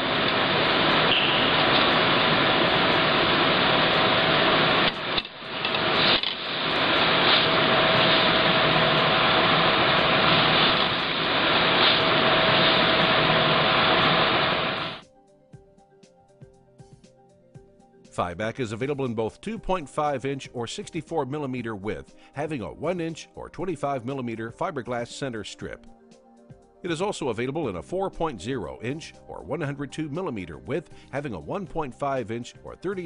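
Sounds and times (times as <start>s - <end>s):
loud workshop hiss: 0.0s - 15.0s.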